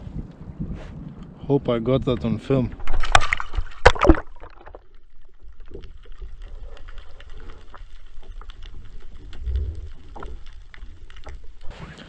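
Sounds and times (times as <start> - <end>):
faint clicks and crackles: 0.2 - 12.0
low underwater rumble: 2.1 - 11.8.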